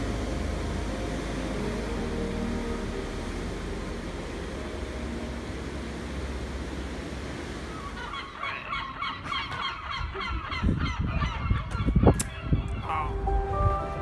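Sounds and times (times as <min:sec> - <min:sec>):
sea surf rushing: 0:00.0 - 0:10.1
flock of birds calling: 0:07.7 - 0:13.1.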